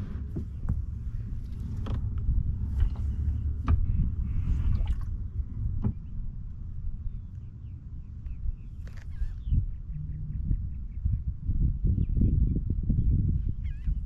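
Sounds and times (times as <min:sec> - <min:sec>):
low rumble: 0:00.0 - 0:14.0
water lapping and dripping: 0:04.4 - 0:05.2.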